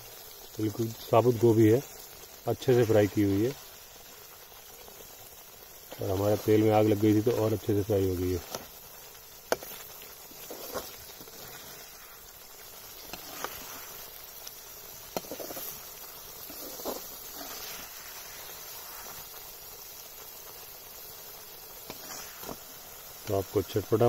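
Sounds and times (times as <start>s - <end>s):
metal ladle scraping iron pot: 15.1s - 15.8s, 16.4s - 17.7s.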